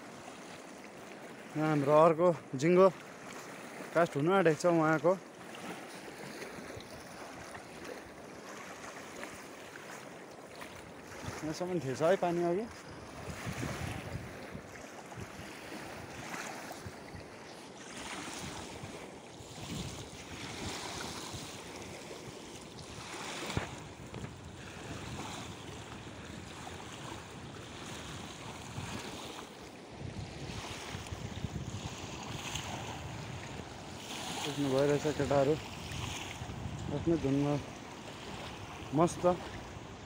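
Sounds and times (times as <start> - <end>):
river water lapping against bank: 0.0 - 40.0
wind buffeting microphone: 12.6 - 17.4, 18.0 - 40.0.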